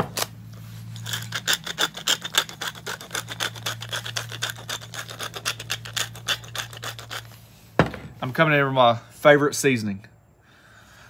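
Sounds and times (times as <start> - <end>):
pepper mill grinding: 0.9 - 7.4.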